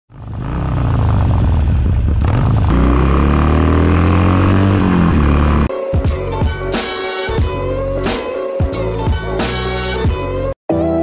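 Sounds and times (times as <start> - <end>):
motorcycle engine rumbling: 0.1 - 5.7
music: 5.7 - 11.0.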